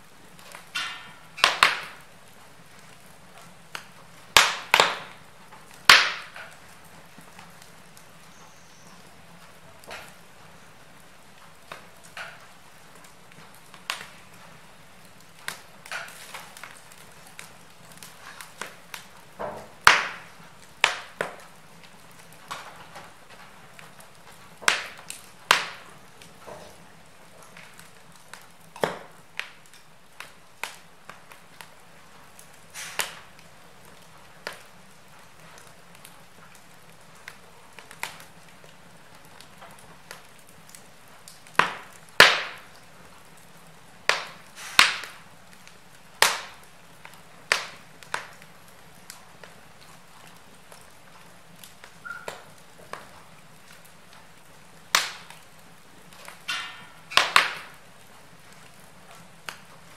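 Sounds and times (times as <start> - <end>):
logs crackling and popping: 0.0 - 59.9
fire hissing: 0.1 - 59.9.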